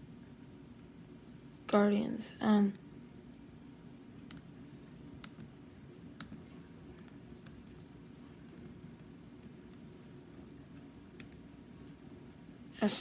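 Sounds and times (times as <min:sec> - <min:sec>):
faint low hum: 0:00.0 - 0:13.0
keyboard keys typing: 0:06.2 - 0:11.8.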